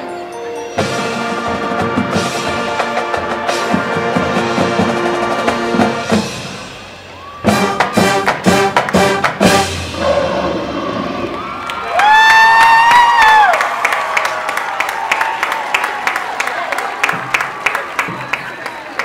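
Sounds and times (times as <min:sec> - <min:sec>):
marching band brass chord: 0:00.8 - 0:10.4
drum strokes: 0:00.8 - 0:11.4.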